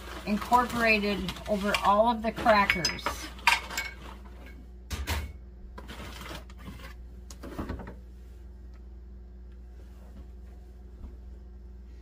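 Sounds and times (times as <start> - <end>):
plastic bag crinkling: 0.0 - 2.5.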